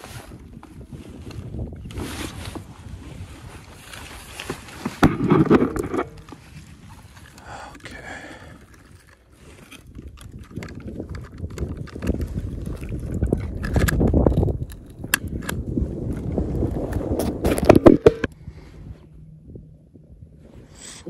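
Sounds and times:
wind rumbling on microphone: 0.0s - 21.0s
clicks and knocks handling fish: 3.8s - 16.3s.

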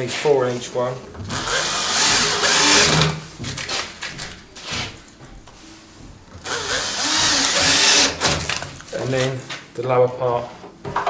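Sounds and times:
drill driving screws: 1.3s - 3.2s, 6.4s - 8.6s
knocks: 6.0s - 8.7s.

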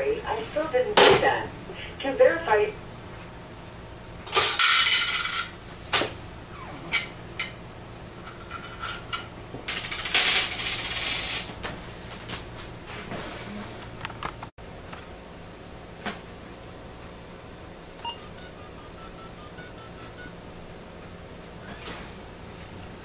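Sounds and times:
coins clattering in payphone: 4.3s - 5.5s, 9.7s - 11.5s.

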